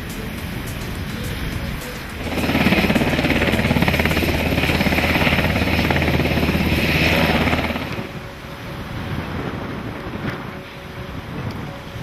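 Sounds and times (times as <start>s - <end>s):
helicopter rotor blade slap: 0.0s - 8.3s
turbine hum: 0.0s - 12.0s.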